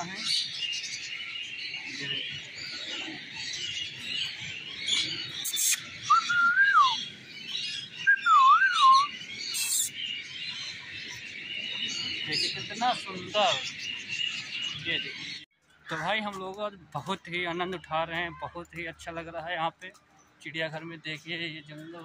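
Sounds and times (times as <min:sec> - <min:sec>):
parakeets chattering: 0:00.0 - 0:08.3, 0:09.0 - 0:15.4
sharp bird shrieks: 0:04.9 - 0:07.0, 0:08.1 - 0:10.0
whistled phrases: 0:05.6 - 0:07.0, 0:08.1 - 0:09.9.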